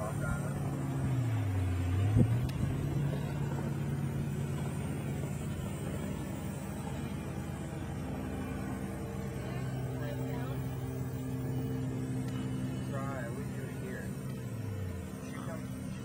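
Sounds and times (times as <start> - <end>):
motor engine running: 0.0 - 16.0.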